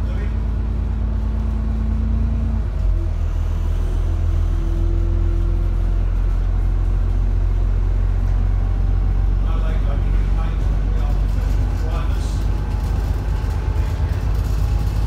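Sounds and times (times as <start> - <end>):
bus diesel engine rumbling: 0.0 - 15.0
faint engine whine: 0.0 - 15.0.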